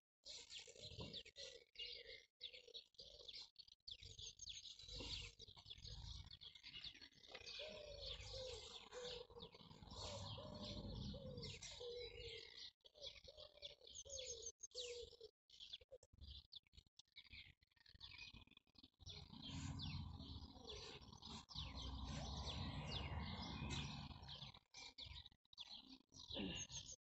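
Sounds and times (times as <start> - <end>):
songbirds chirping: 0.2 - 27.0.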